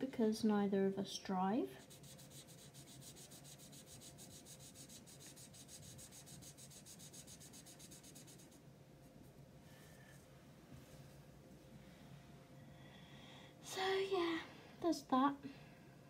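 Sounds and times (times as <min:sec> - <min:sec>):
marker scratching on paper: 0:01.8 - 0:08.6.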